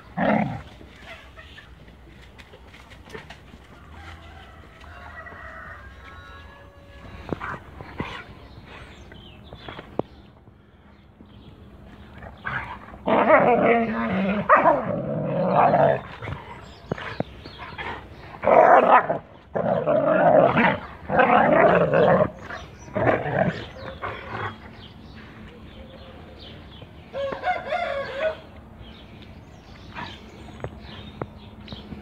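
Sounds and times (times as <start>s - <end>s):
dogs growling: 0.0s - 0.8s, 12.2s - 24.9s.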